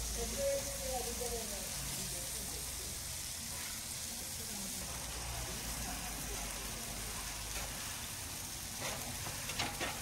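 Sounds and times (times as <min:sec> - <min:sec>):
oil sizzling on a griddle: 0:00.0 - 0:10.0.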